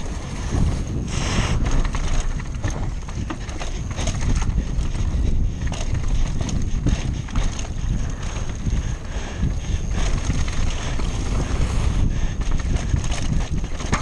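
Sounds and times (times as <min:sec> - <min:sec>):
mountain bike rattling: 0:00.0 - 0:14.0
tyres rumbling: 0:00.0 - 0:14.0
wind buffeting microphone: 0:00.0 - 0:14.0.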